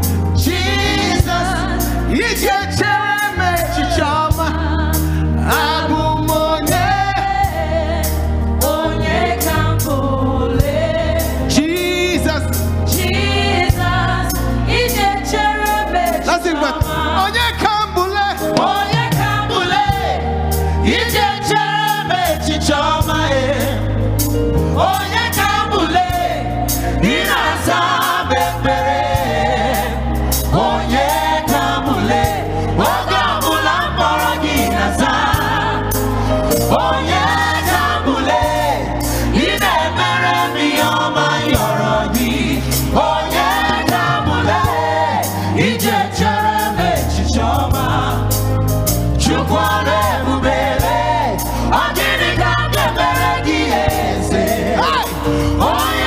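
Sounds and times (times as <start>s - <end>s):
backing vocalists singing: 0.0s - 56.0s
bass: 0.0s - 56.0s
lead singer singing: 49.1s - 56.0s.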